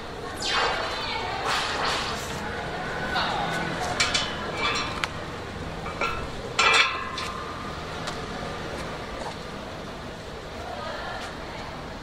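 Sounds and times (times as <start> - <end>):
ringing metal clank: 3.9 - 5.1, 5.8 - 7.5.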